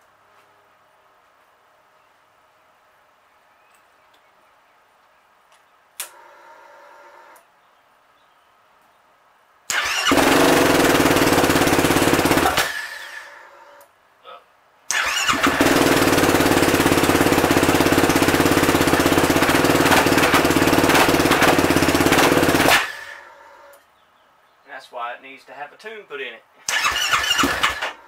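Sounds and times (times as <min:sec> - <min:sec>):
quad engine running: 0:09.7 - 0:13.4, 0:14.9 - 0:23.4, 0:26.8 - 0:28.0.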